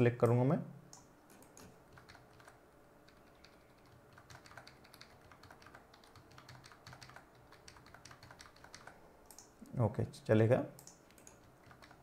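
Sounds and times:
computer keyboard and mouse clicking: 0.9s - 9.5s, 10.8s - 12.0s.

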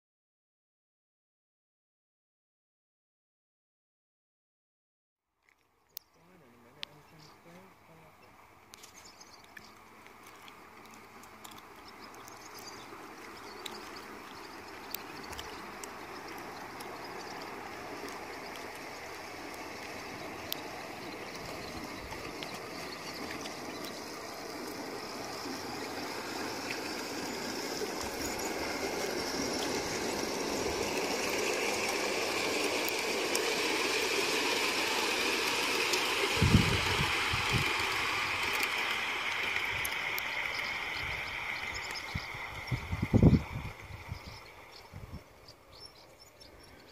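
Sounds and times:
model train wheels rolling: 9.8s - 44.9s.

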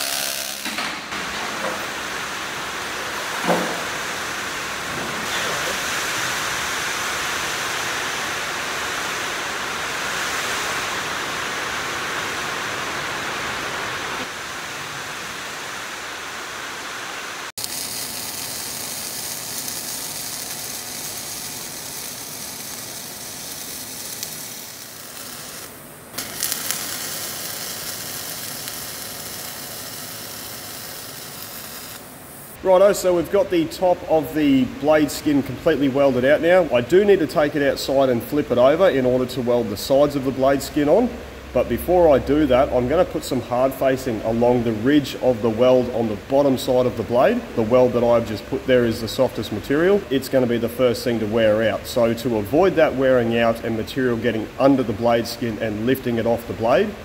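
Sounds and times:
welding arc crackling and hissing: 0.0s - 41.0s.

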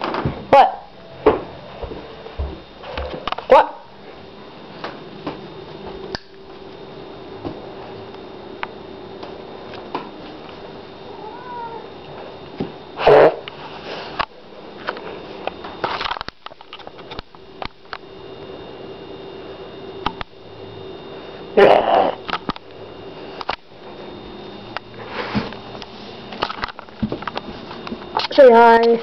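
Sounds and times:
steady low hum: 0.0s - 29.0s
cat meowing: 11.1s - 11.9s.

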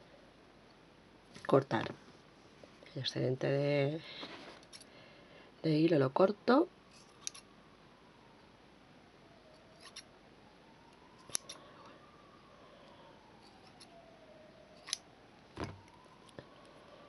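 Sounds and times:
scissors snipping thread: 7.0s - 7.4s, 11.2s - 11.6s, 14.8s - 15.0s.

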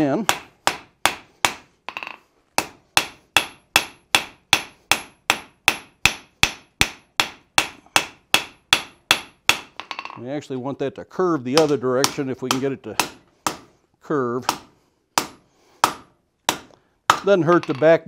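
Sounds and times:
hammer striking steel on anvil: 0.3s - 10.2s.

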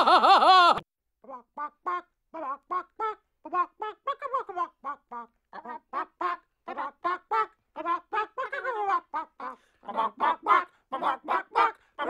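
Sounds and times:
chicken-like clucking and squawking: 0.0s - 0.8s.

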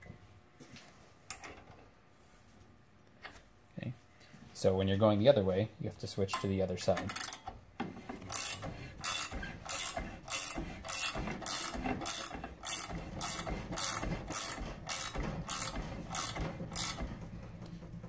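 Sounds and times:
ratcheting wrench clicking: 7.0s - 7.5s, 8.2s - 17.1s.

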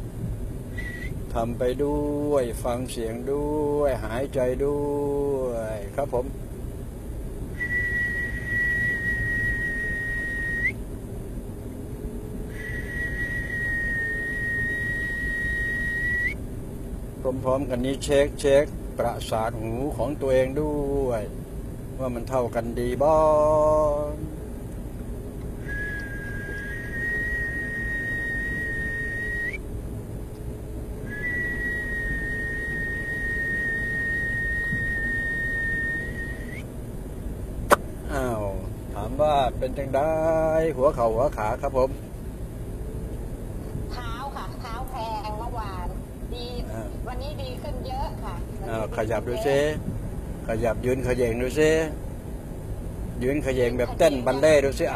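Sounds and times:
low background rumble: 0.0s - 54.9s
steady low hum: 0.0s - 54.9s
high-pitched pure tone: 25.6s - 29.6s, 31.0s - 36.6s, 53.5s - 54.9s.

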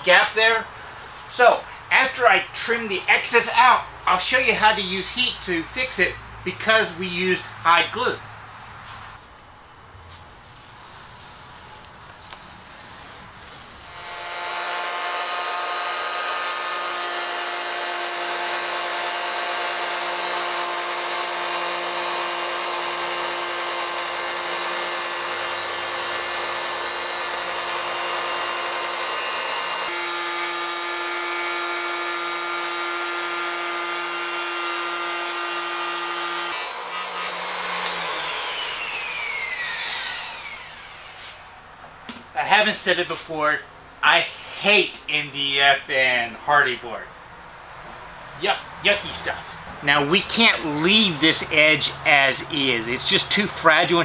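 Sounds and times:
router whining: 10.5s - 41.5s.

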